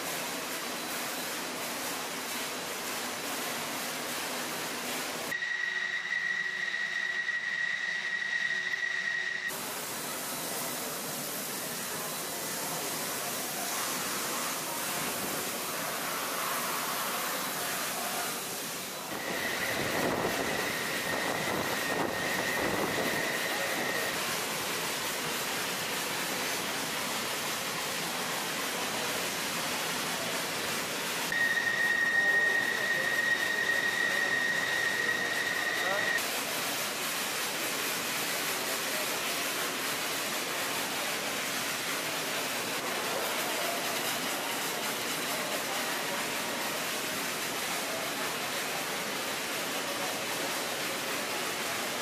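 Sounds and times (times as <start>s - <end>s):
high whine: 5.3s - 9.5s, 19.1s - 24.2s, 31.3s - 36.2s
water spray hissing: 9.5s - 52.0s.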